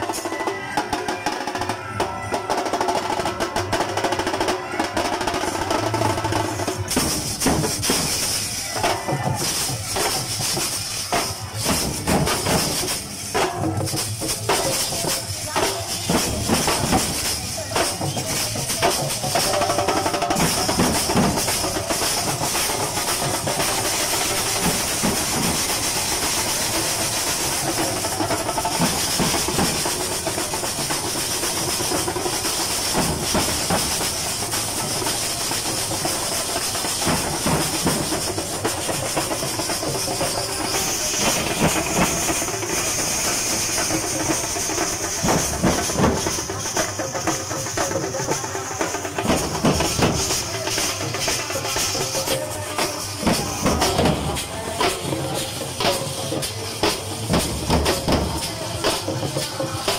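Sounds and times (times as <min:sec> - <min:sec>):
percussion band drumming: 0:00.0 - 0:59.9.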